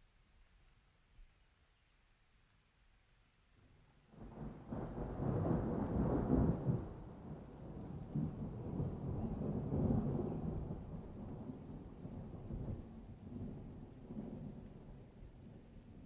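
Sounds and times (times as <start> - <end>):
thunder rumbling: 4.1 - 16.0.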